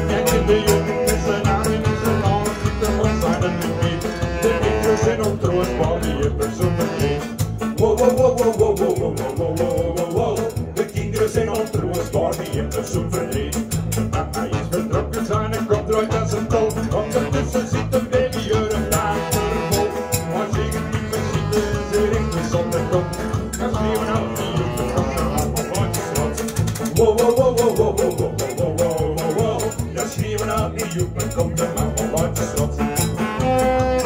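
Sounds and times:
saxophone melody: 0.0s - 8.0s, 16.6s - 26.6s, 32.5s - 34.0s
strummed acoustic guitars: 0.0s - 34.0s.

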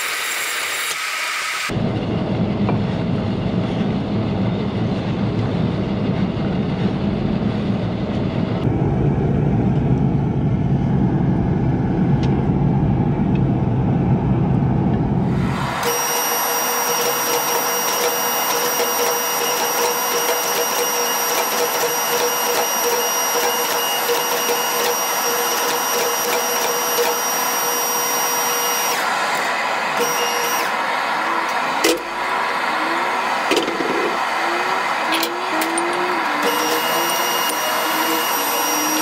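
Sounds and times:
hydraulic pump motor whine: 0.0s - 1.9s, 15.2s - 39.0s.

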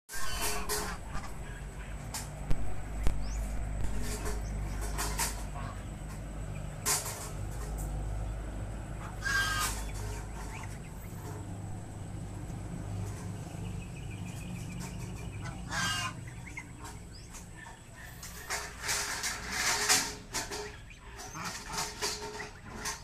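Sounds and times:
chicken calling: 0.1s - 6.8s, 8.8s - 19.6s
low steady hum: 0.1s - 19.2s.

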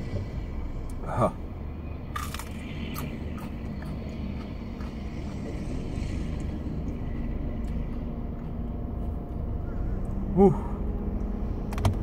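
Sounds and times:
low vehicle rumble: 0.0s - 12.0s
man chewing: 2.1s - 10.2s.

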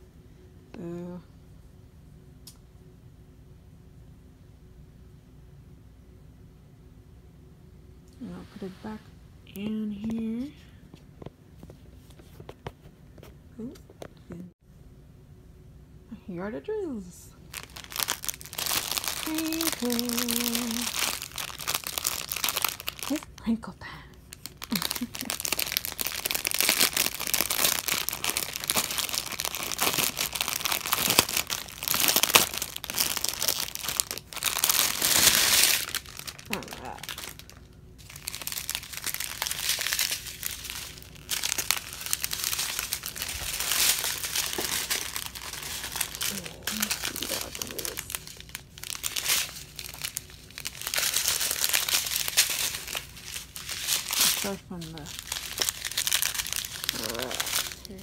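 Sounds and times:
plastic wrapping crinkling: 17.4s - 58.0s.

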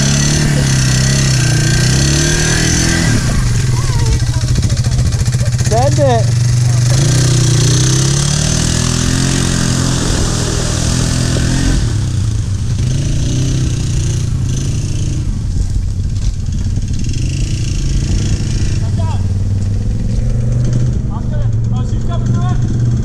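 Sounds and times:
atv engine revving: 0.0s - 23.0s.

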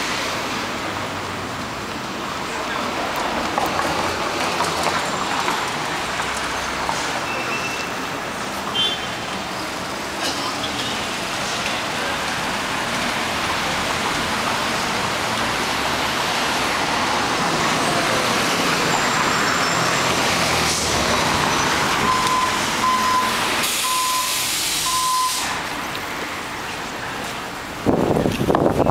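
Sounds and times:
cars going by: 0.0s - 28.9s
short beeps: 22.1s - 25.5s.

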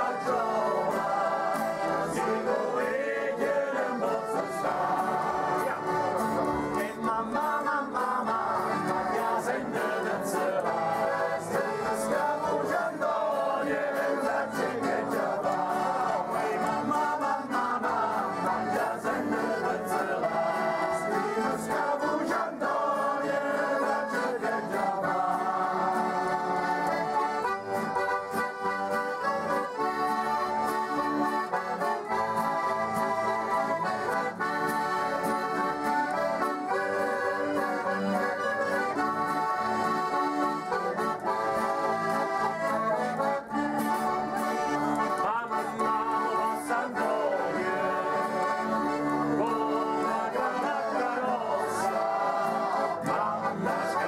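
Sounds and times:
men singing in unison: 0.0s - 27.2s, 44.8s - 54.0s
button accordion: 0.0s - 54.0s.

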